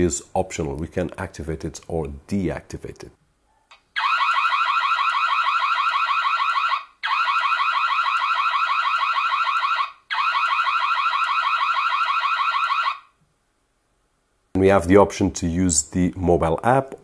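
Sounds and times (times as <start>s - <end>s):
security camera siren chirping: 3.7s - 13.2s.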